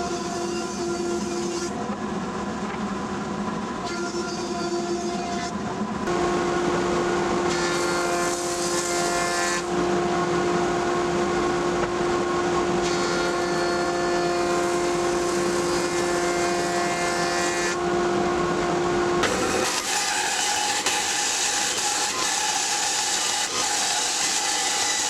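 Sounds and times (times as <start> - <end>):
planer cutting wood board: 6.1 - 25.0
planer whining: 6.1 - 25.0.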